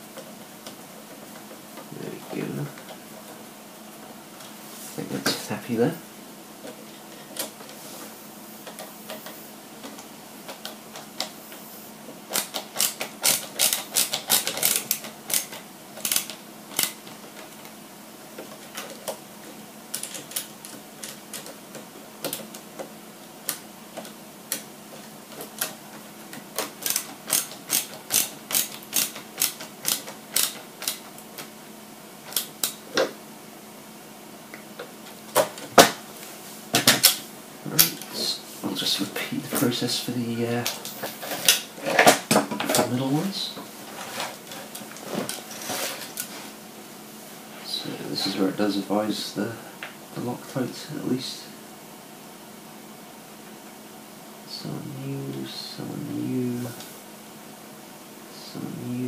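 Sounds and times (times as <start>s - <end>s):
faint steady hum: 0.0s - 59.0s
parts and tools clicking: 12.3s - 17.7s, 19.9s - 31.5s.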